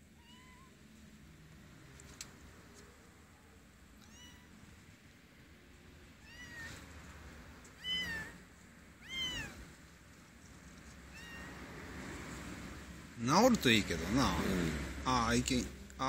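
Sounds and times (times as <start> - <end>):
kitten meowing: 0.1 - 0.8, 4.0 - 4.6, 6.2 - 6.8, 7.7 - 8.4, 9.0 - 9.6, 11.1 - 11.6.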